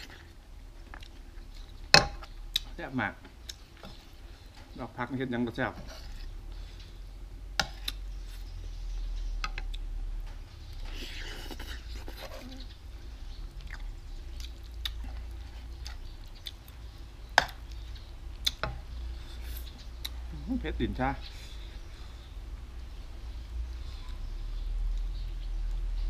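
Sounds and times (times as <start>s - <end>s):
person chewing and slurping: 10.7s - 12.8s.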